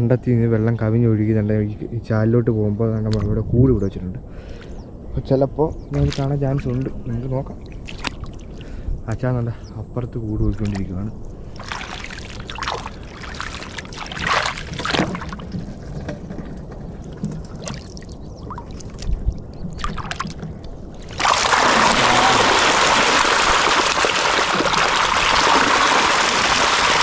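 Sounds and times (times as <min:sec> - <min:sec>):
water splashes: 0:06.0 - 0:08.8, 0:10.4 - 0:16.1, 0:17.1 - 0:27.0
rush of flowing water: 0:11.5 - 0:15.4, 0:21.0 - 0:27.0.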